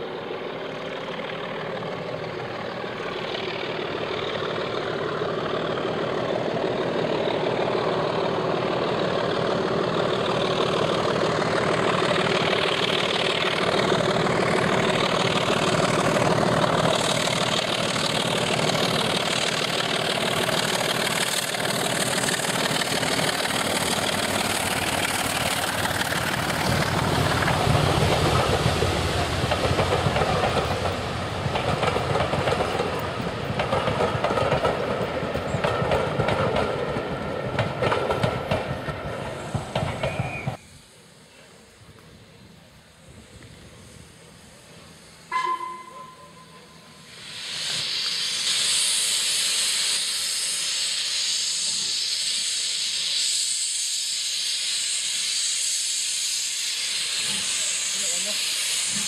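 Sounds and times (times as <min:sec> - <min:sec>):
diesel locomotive engine: 0:00.0 - 0:59.0
train wheels clattering over joints: 0:09.2 - 0:40.6.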